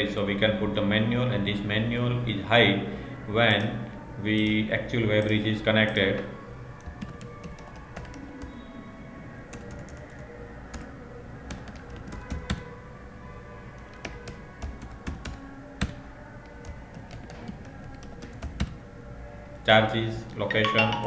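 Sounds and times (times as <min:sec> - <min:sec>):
typing on computer keyboard: 0:05.2 - 0:06.0, 0:06.8 - 0:08.5, 0:09.5 - 0:10.9, 0:11.5 - 0:12.7, 0:13.8 - 0:18.8.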